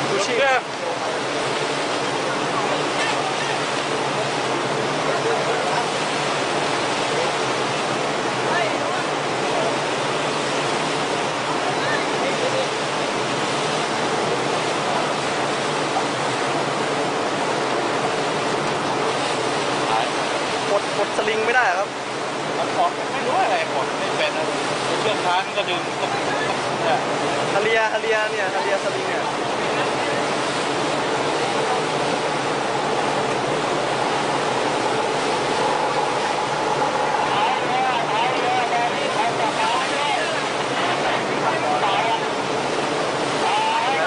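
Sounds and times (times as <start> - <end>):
rushing water: 0.0 - 44.0
wind rushing: 30.3 - 39.8.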